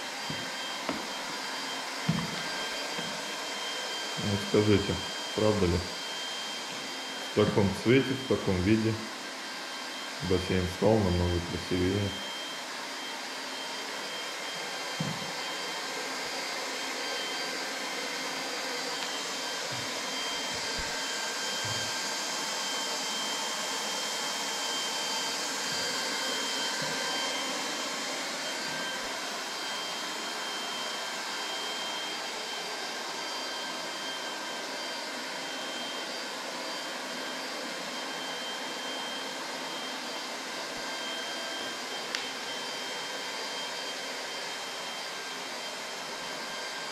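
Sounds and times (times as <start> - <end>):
soft knocks: 2.1 - 3.1
hot-air welding gun blower hissing: 18.9 - 22.1.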